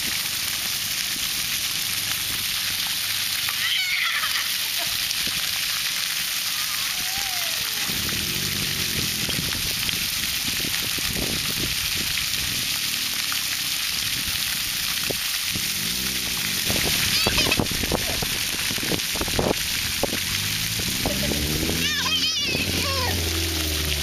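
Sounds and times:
fountain jets spraying water: 0.0 - 24.0.

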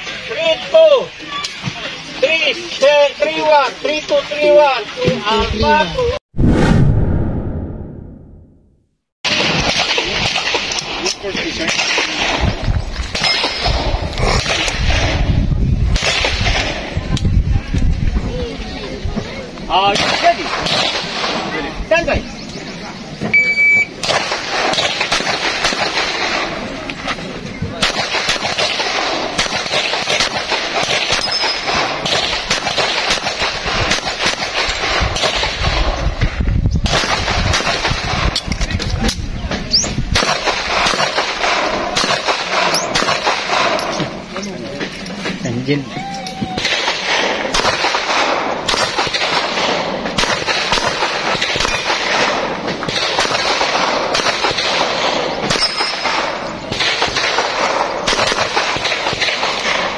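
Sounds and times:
steady background noise: 9.3 - 59.9
pistol shots: 24.0 - 26.7, 27.8 - 35.9, 40.1 - 44.1, 46.6 - 59.9.

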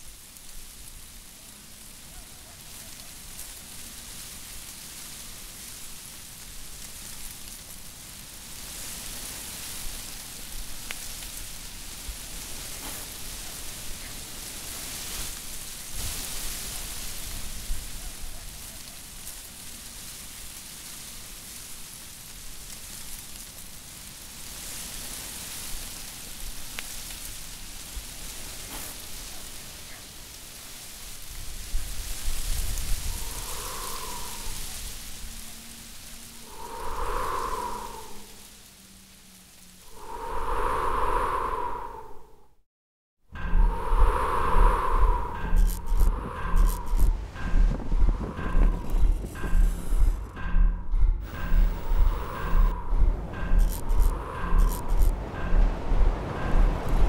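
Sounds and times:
wind rustling dry leaves: 0.0 - 42.5, 43.3 - 57.0
wind rumble on microphone: 31.1 - 42.6, 43.3 - 57.0.

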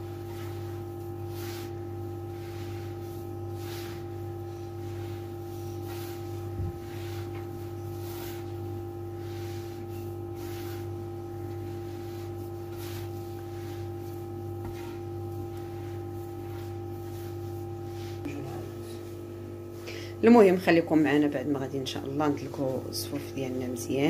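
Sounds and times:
hands kneading crumbly dough: 0.0 - 19.0
steady background hum: 0.0 - 24.0.

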